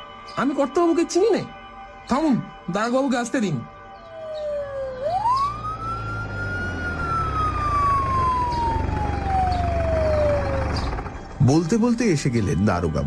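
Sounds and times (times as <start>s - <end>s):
police siren wailing: 3.9s - 11.3s
low engine rumble: 5.0s - 12.4s.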